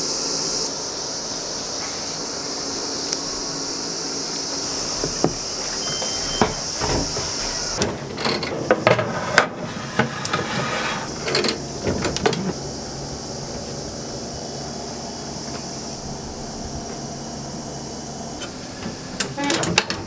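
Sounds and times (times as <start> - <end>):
oven door shutting: 4.5 - 12.7, 18.4 - 20.0
metal baking tray clattering: 4.7 - 12.5.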